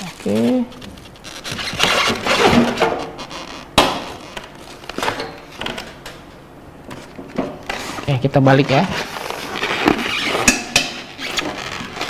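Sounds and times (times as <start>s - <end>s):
packaging rustling and scraping: 0.0s - 6.0s, 6.8s - 12.0s.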